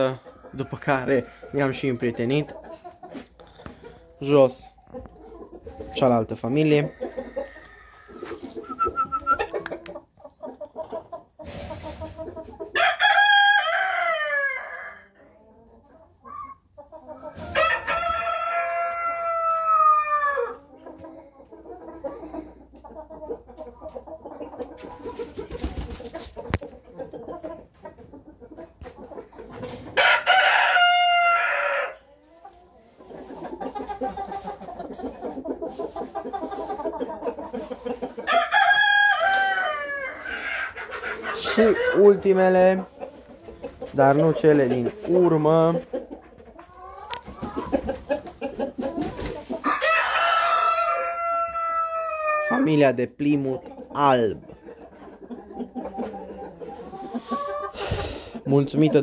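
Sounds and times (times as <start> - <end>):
hens clucking: 0.0 - 59.0
roosters crowing: 6.6 - 9.2, 12.7 - 15.2, 17.3 - 20.6, 29.7 - 32.1, 38.1 - 42.4, 49.6 - 52.8.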